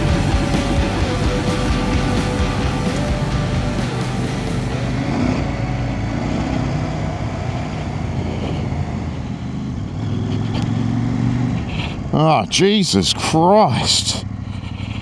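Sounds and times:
motorcycle engine running: 0.0s - 15.0s
tyres on gravel: 7.8s - 15.0s.

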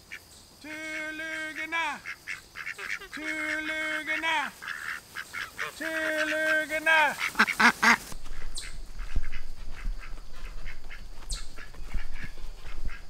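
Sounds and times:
ducks quacking: 0.1s - 13.0s
geese honking: 0.1s - 13.0s.

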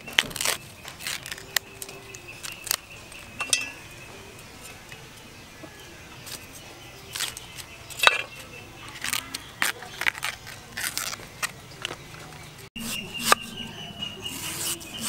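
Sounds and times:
husk tearing with crackles and snaps: 0.0s - 3.4s, 5.7s - 13.4s
knife cutting on wooden board: 12.8s - 13.6s.

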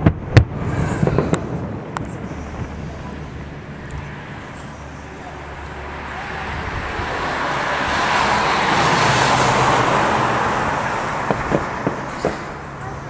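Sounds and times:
firework cracks: 0.0s - 3.0s, 10.5s - 12.8s
fireworks rushing hiss: 0.0s - 12.8s.

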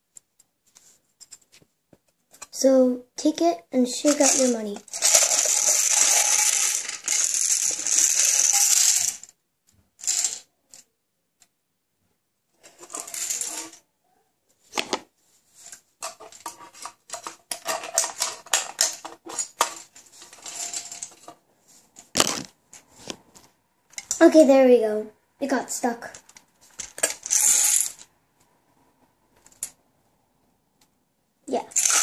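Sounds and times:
coin rattling in shaken machine: 4.0s - 9.3s, 10.0s - 10.5s, 12.8s - 13.8s, 16.8s - 21.2s, 26.8s - 28.0s, 31.6s - 32.0s.

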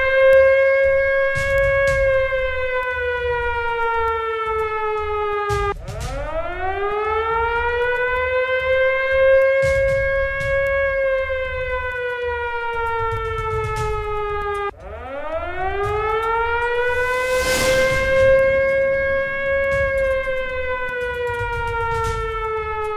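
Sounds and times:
siren wailing: 0.0s - 22.9s
deep rumbles: 16.6s - 22.5s
sharp hits: 16.7s - 21.8s.

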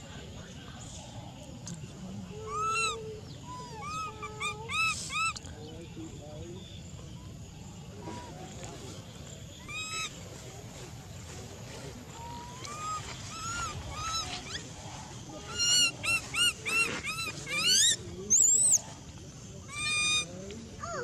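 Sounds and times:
infant monkey crying: 2.3s - 5.4s, 9.6s - 10.2s, 12.2s - 14.7s, 15.4s - 18.8s, 19.6s - 21.0s.

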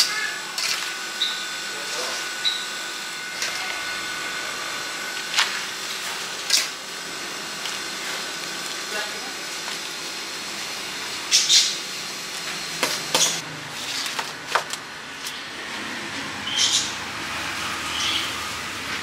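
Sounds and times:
street stall background noise: 0.0s - 19.0s.

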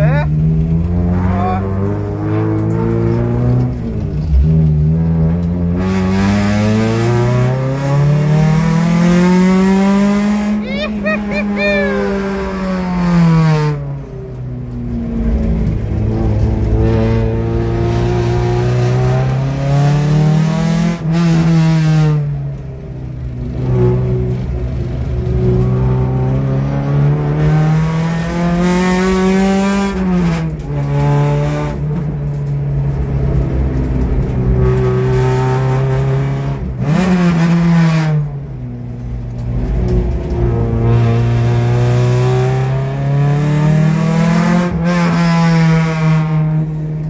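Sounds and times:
car engine revving from inside cabin: 0.4s - 10.6s.

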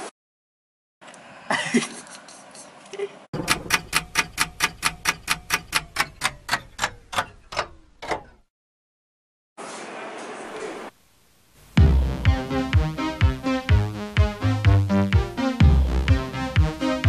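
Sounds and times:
fast clock ticking: 3.4s - 7.7s
faint steady hiss: 10.9s - 11.8s.

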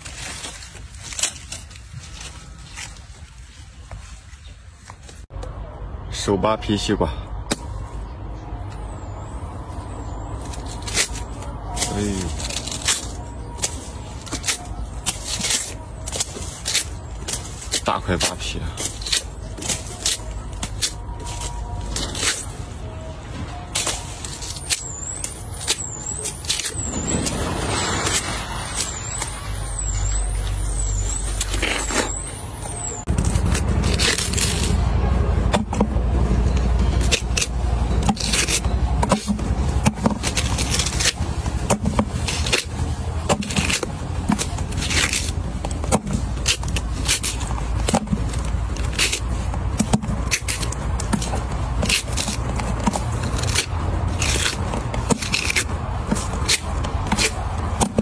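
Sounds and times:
watermelon rind cracking: 46.3s - 58.0s.

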